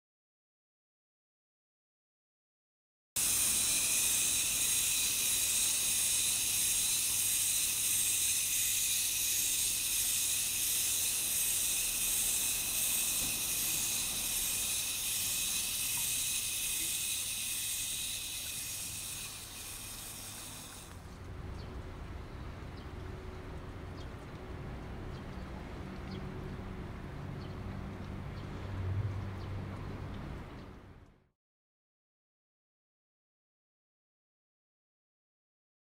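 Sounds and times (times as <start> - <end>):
insect chorus hissing: 3.2 - 21.0.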